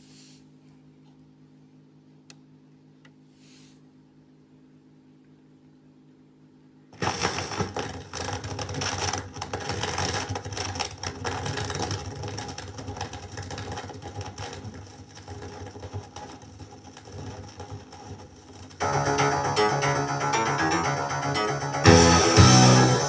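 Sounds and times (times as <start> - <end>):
vinyl record crackle and clicks: 7.0 - 23.0.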